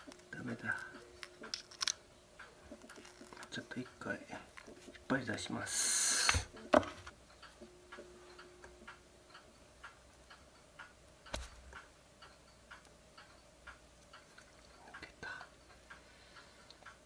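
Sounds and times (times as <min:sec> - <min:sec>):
metal pliers clicking: 0:01.2 - 0:02.0.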